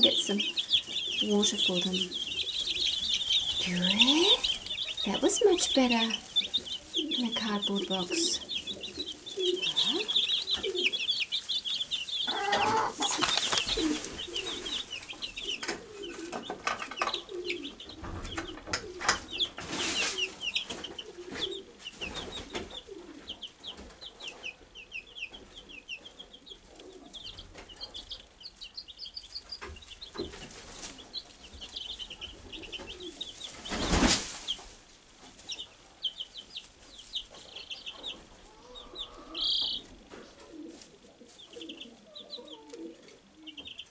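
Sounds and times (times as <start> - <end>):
rustles in straw bedding: 0.0 - 15.5, 19.6 - 21.2, 30.3 - 35.7
chicks peeping: 0.0 - 43.9
loud rustle or bump: 33.7 - 34.6.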